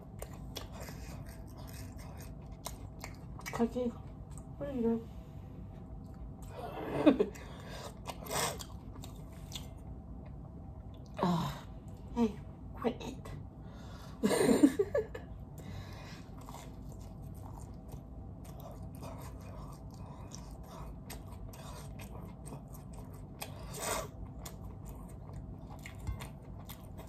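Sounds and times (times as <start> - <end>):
person chewing food: 0.0 - 4.5, 5.8 - 11.2, 15.5 - 27.0.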